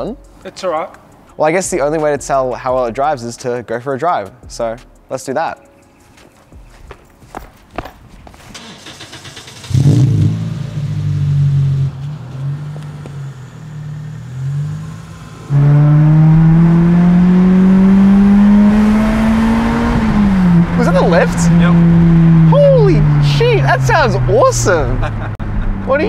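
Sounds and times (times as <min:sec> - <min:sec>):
car engine idling and accelerating: 0:06.6 - 0:26.0.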